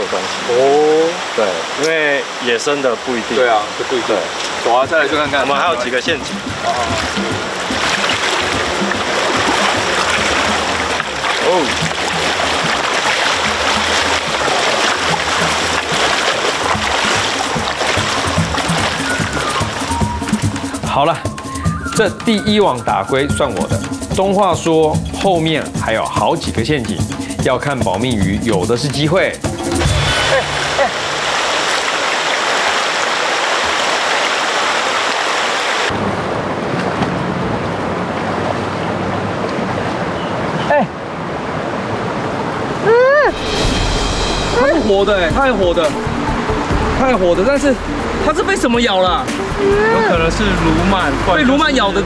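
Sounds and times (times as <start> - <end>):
stream running over rocks: 0.0 - 21.3, 27.4 - 52.0
legs wading through water: 4.2 - 20.9, 30.0 - 35.9, 36.5 - 40.7.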